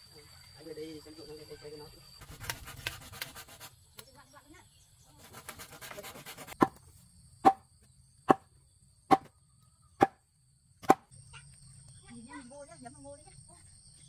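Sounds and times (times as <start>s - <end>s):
sharp chopping strikes: 7.4s - 7.6s, 9.1s - 9.3s, 10.8s - 11.1s.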